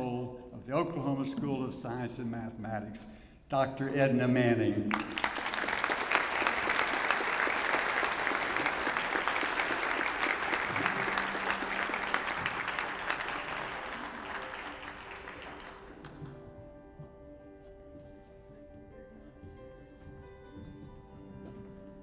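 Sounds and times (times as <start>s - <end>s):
audience applauding: 4.9s - 16.4s.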